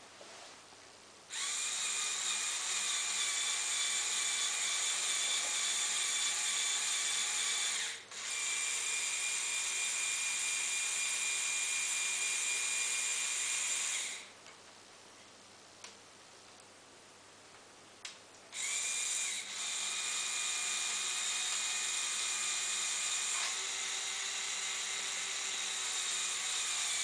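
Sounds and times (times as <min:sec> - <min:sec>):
small electric motor whining: 0:01.3 - 0:14.3, 0:18.6 - 0:27.0.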